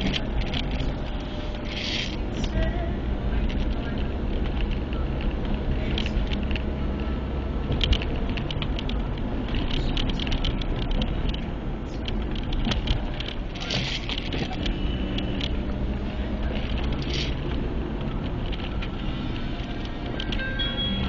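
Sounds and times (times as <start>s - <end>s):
light clicks and rattles: 0.0s - 2.8s, 3.4s - 15.8s
engine and road rumble: 0.0s - 21.0s.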